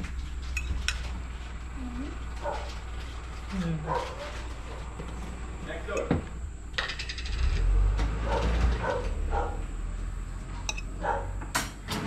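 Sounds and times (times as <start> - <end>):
sharp clatter: 6.7 - 7.7.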